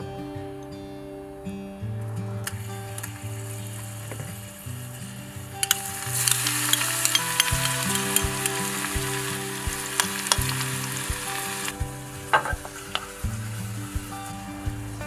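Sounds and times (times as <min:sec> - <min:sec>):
garlic sizzling in hot oil: 0:04.8 - 0:11.8.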